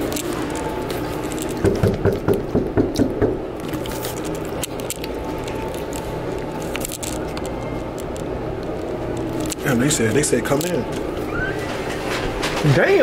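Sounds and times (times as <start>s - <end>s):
steady background hum: 0.0s - 13.0s
knuckles knocking on door: 1.6s - 3.4s.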